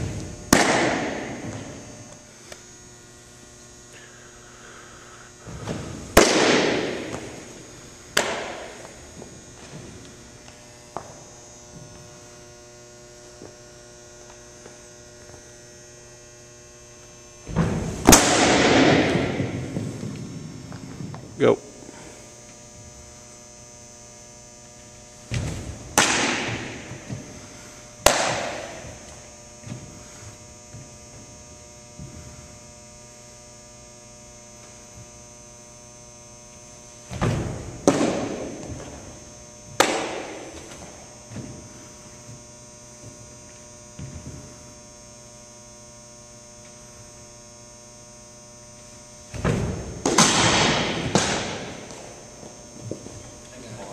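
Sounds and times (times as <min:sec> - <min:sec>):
electrical hum: 0:00.0 - 0:53.9
sharp smack: 0:00.5 - 0:01.4, 0:26.0 - 0:26.8, 0:28.0 - 0:28.8, 0:39.8 - 0:40.4, 0:49.4 - 0:51.9
ball popping into mitt: 0:28.0 - 0:29.8, 0:49.4 - 0:52.2.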